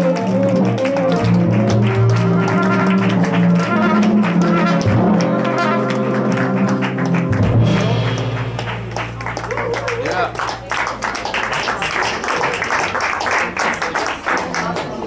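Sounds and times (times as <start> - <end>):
tenor saxophone: 0.0 - 8.3
trumpet: 0.0 - 9.5
upright bass: 0.0 - 11.5
piano: 0.0 - 14.4.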